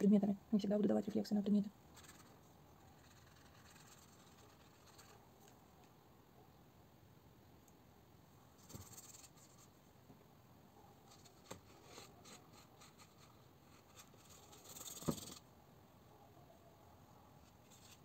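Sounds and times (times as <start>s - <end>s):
brush on paper: 2.0s - 5.2s, 11.0s - 15.4s.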